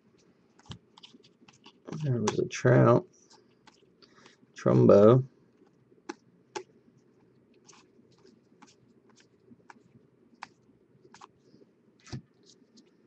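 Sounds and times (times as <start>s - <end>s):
cards being flipped by hand: 0.6s - 2.5s, 12.0s - 13.0s.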